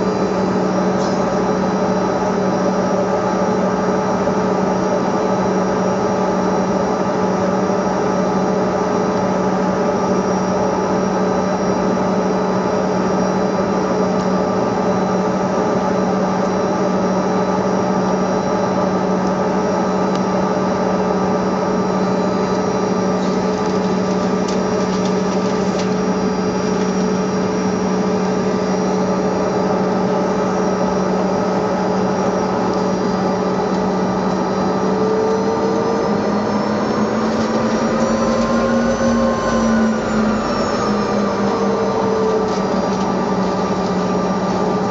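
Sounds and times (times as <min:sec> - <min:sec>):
jet engines idling: 0:00.0 - 0:44.9
whining tones: 0:15.0 - 0:44.9.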